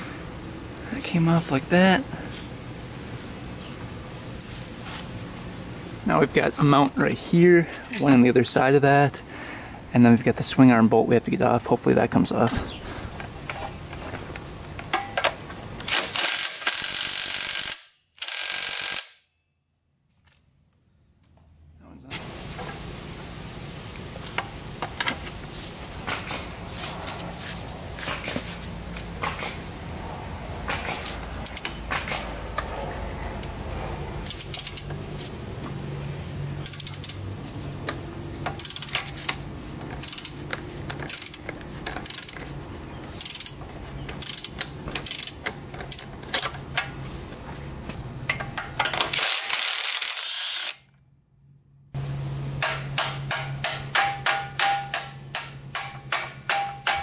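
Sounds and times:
socket ratchet clicking: 34.2s - 34.9s, 36.6s - 37.2s, 38.5s - 39.4s, 40.0s - 42.4s, 43.2s - 46.1s.

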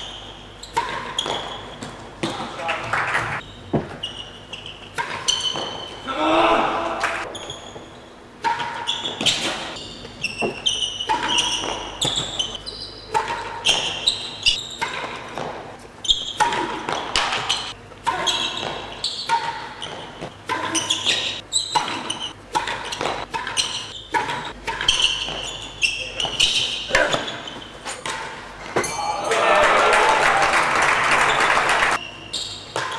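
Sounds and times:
short high squeaks: 3.4s - 6.1s, 7.3s - 15.0s, 16.0s - 28.0s.

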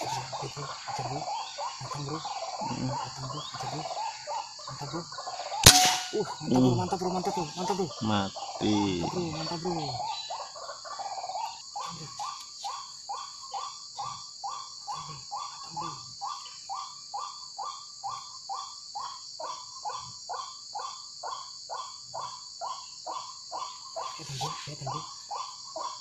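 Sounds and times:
waterhen croaking calls: 0.0s - 11.6s
crickets humming: 0.0s - 26.0s.

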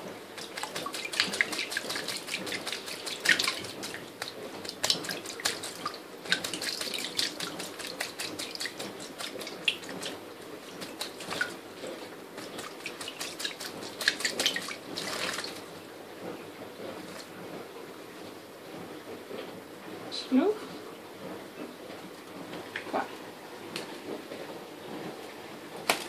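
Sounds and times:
water splashing in metal sink: 0.0s - 15.8s
bird wings flapping: 0.4s - 15.6s, 25.8s - 26.0s.

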